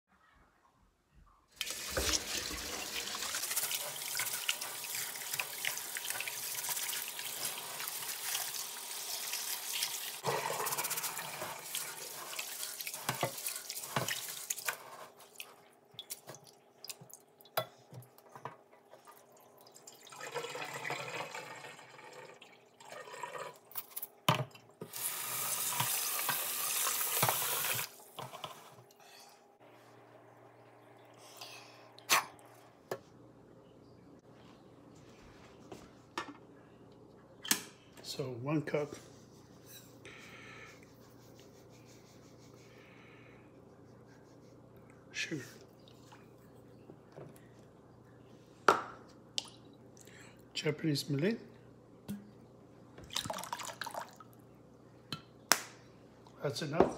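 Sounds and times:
tap water running into pot: 0:01.6 - 0:14.8, 0:19.6 - 0:23.6, 0:24.8 - 0:28.2, 0:53.0 - 0:54.2.

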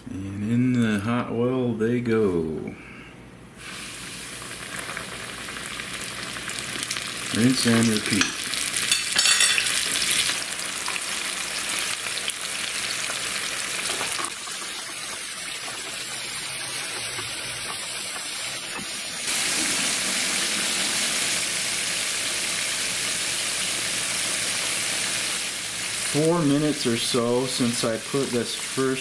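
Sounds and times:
fish frying in hot oil: 0:03.6 - 0:29.0.

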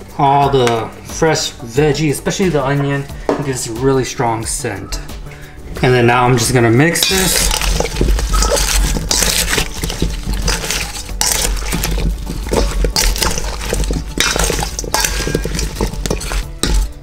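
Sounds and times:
vegetables scraping and rustling in bowl: 0:05.8 - 0:17.0
spatula knocking metal bowl: 0:07.0 - 0:17.0.

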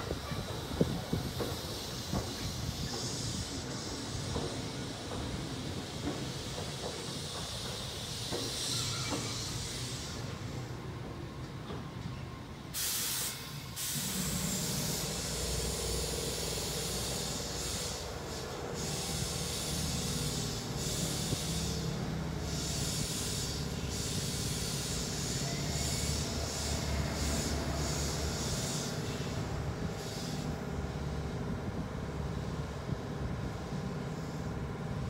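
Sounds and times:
air release hiss: 0:00.0 - 0:10.7, 0:12.7 - 0:31.4
electric train slowing: 0:00.0 - 0:35.0
standing train hum: 0:00.0 - 0:35.0.

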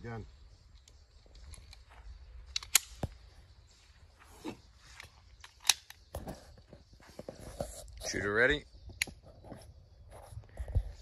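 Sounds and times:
pistol slide clicking and clacking: 0:02.5 - 0:03.0, 0:05.4 - 0:06.0.

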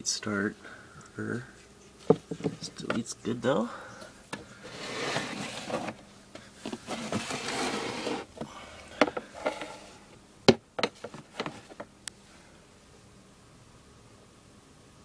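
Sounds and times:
plastic tubs rubbing and scraping: 0:04.6 - 0:06.0, 0:06.6 - 0:08.4, 0:09.0 - 0:10.1
plastic tubs clicking and knocking: 0:10.5 - 0:11.9.

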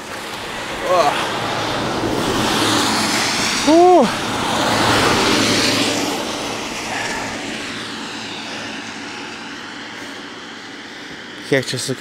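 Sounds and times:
minibus engine: 0:00.0 - 0:11.5.

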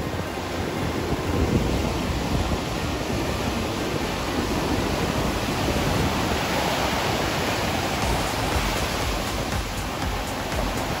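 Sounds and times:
surf breaking and washing ashore: 0:00.0 - 0:11.0
wind buffeting microphone: 0:00.0 - 0:11.0.

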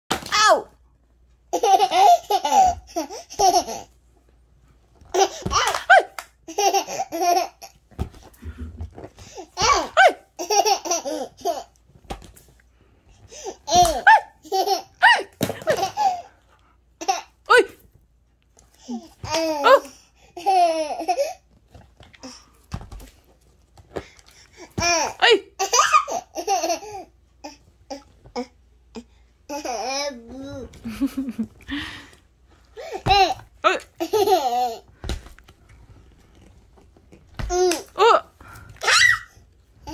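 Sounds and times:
baby laughing: 0:01.5 - 0:03.9, 0:05.1 - 0:07.8, 0:09.6 - 0:11.7, 0:13.7 - 0:16.3.

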